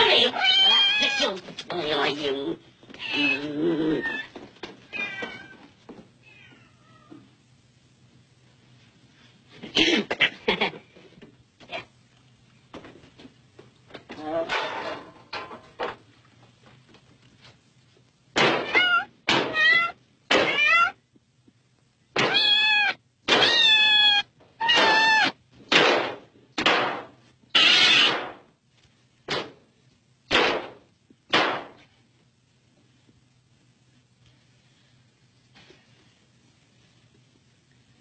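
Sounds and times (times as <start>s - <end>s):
faint low hum: 0.0s - 38.0s
cat meowing and yowling: 0.2s - 1.2s, 18.6s - 21.0s, 22.2s - 25.4s.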